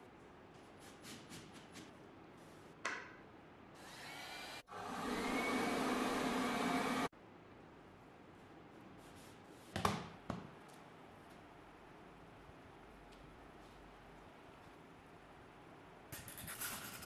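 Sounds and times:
heat gun blowing with whine: 0:03.8 - 0:07.1.

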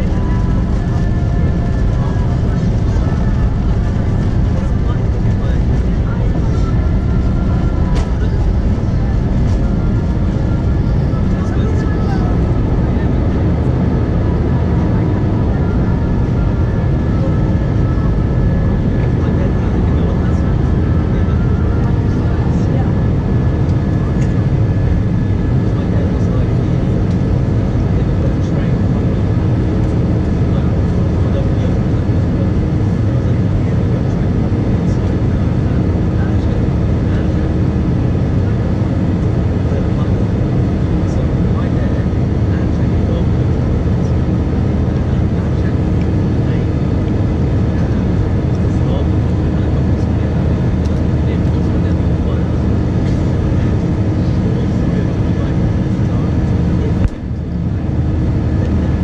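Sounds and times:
faint steady engine whines: 0:00.0 - 0:59.0
jet engines rumbling: 0:00.0 - 0:59.0.

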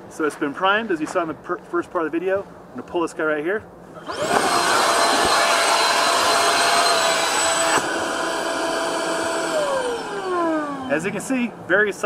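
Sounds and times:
fan whine: 0:04.0 - 0:12.0.

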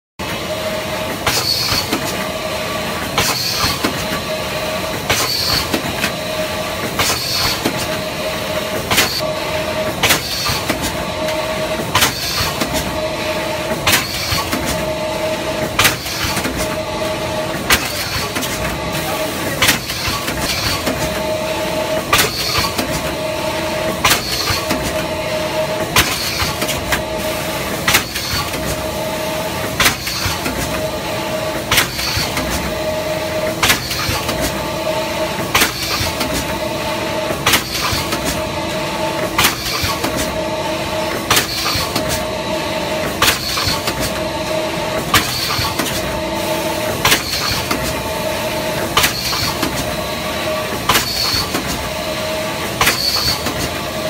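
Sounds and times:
machine whine: 0:00.2 - 0:54.0.

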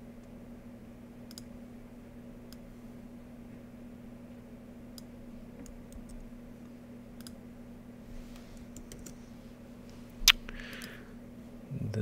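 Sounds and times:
faint steady hum: 0:00.0 - 0:12.0
keyboard and mouse clicks: 0:01.3 - 0:01.5, 0:08.7 - 0:09.2.

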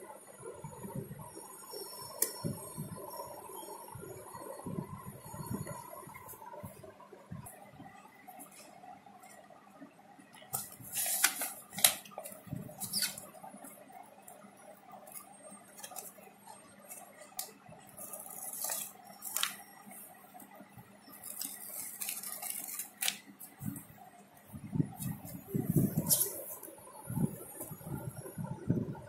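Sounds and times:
paper sticker sheet rustling: 0:10.5 - 0:13.2, 0:15.0 - 0:19.7, 0:21.1 - 0:23.9, 0:25.0 - 0:27.3.

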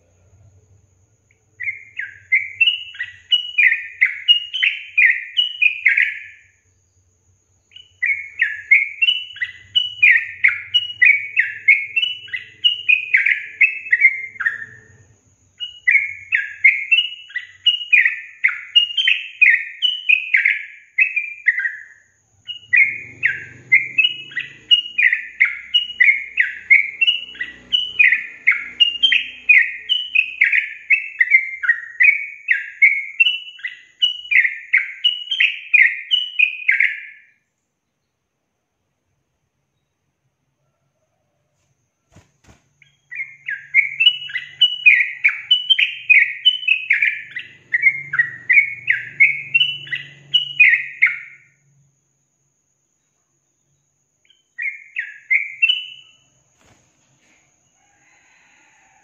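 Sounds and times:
bird chattering song: 0:01.3 - 0:06.5, 0:07.6 - 0:37.3, 0:42.1 - 0:51.6, 0:53.6 - 0:56.4.

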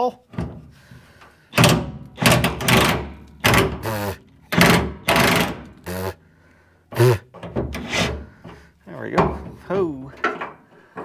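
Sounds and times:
impact wrench hammering: 0:01.6 - 0:06.2.

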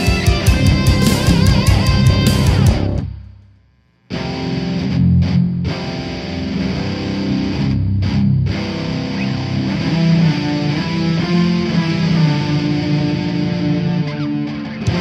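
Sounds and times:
heavy metal music: 0:00.0 - 0:03.2, 0:04.1 - 0:15.0.

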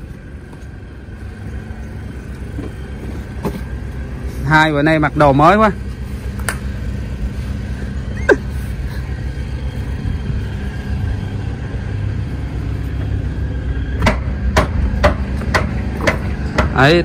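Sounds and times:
engine running low rumble: 0:00.0 - 0:17.0
sharp knocks: 0:14.0 - 0:16.8.

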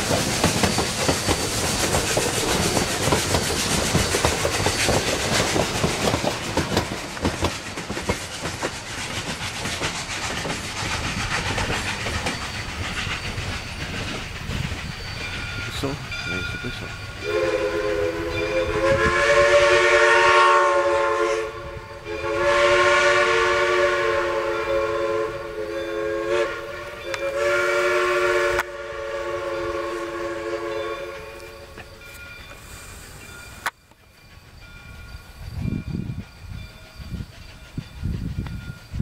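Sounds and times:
low gusty rumble: 0:02.1 - 0:30.2
steam locomotive chime whistle: 0:11.6 - 0:39.0.

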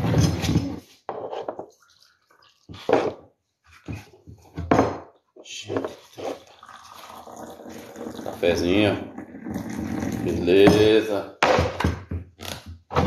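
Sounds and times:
dishes clattering on a table: 0:03.9 - 0:05.1.

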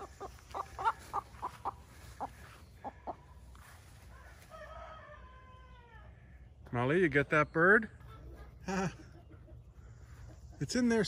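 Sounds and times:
chicken clucking: 0:00.0 - 0:03.6, 0:08.0 - 0:11.0.

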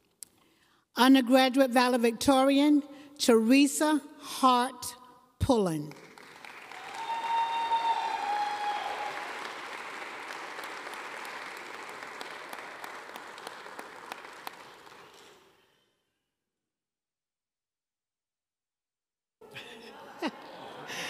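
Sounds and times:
audience applause: 0:06.1 - 0:15.4
person cheering: 0:06.7 - 0:09.3.

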